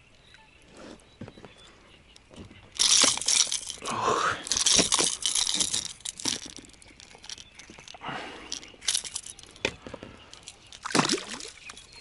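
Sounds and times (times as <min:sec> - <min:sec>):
metal lure rattling: 0:02.7 - 0:12.0
fish lowered into water: 0:10.4 - 0:12.0.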